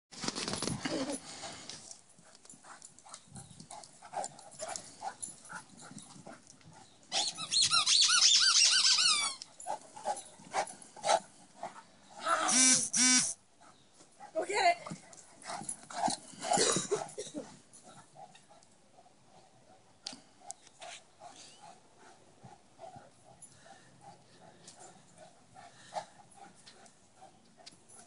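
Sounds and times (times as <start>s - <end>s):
dog crying: 7.2s - 9.4s, 12.4s - 13.2s
dog squealing: 7.2s - 9.4s.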